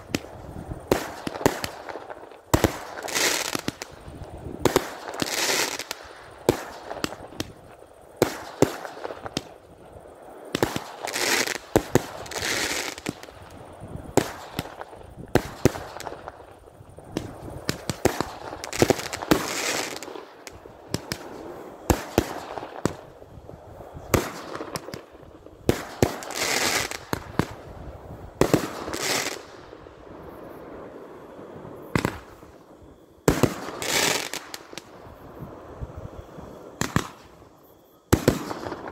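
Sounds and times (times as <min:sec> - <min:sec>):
fireworks crackling: 0:00.0 - 0:38.9
fireworks bangs: 0:23.9 - 0:30.0, 0:31.8 - 0:35.0, 0:36.6 - 0:37.4, 0:38.1 - 0:38.9.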